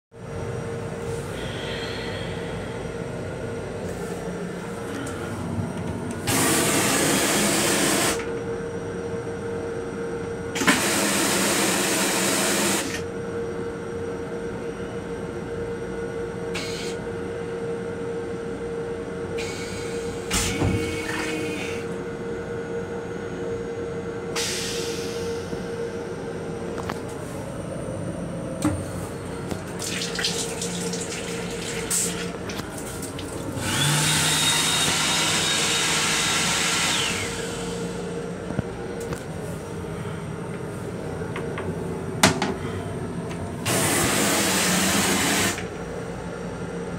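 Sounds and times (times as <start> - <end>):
moving train hum and rumble: 0.2 - 46.9
toilet flushing hiss: 10.6 - 13.0, 29.7 - 37.8, 43.7 - 45.6.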